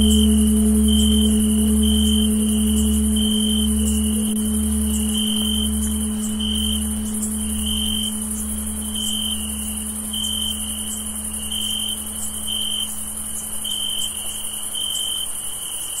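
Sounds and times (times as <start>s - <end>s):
crickets chirping: 0.0s - 16.0s
high-pitched insect chorus: 0.0s - 16.0s
tolled bell hum: 0.0s - 16.0s.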